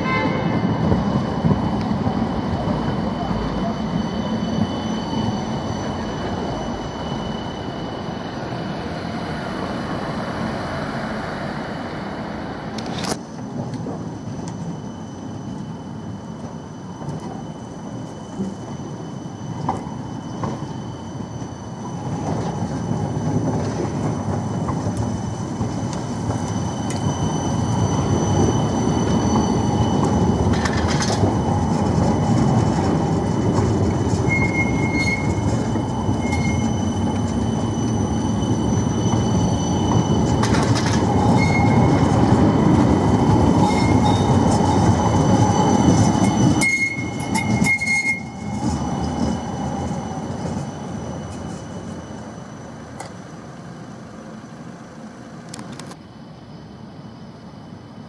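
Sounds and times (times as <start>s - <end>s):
tram wheel squeals: 0.0s - 58.0s
tram wheels rumbling on rails: 0.0s - 58.0s.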